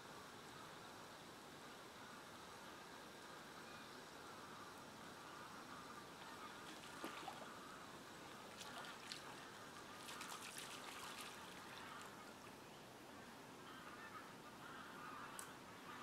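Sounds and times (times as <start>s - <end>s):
distant water-bird calls: 3.6s - 16.0s
water trickling and splashing: 6.0s - 12.6s.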